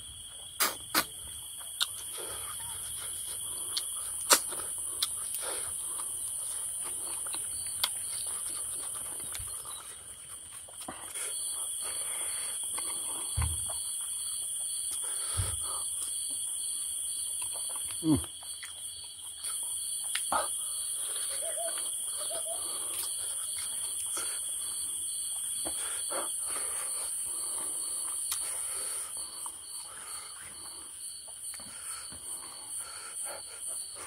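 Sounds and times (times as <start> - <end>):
insect pulsing call: 0.0 - 34.0
insects chirring high tones: 0.0 - 34.0
eating clicks and smacks: 0.6 - 9.9, 17.2 - 24.7, 28.0 - 28.6.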